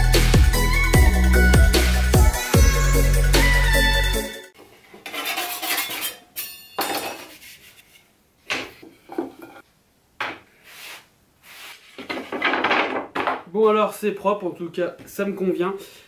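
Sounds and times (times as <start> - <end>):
tools clattering on table: 5.0 - 7.3, 8.5 - 9.6, 12.0 - 13.4.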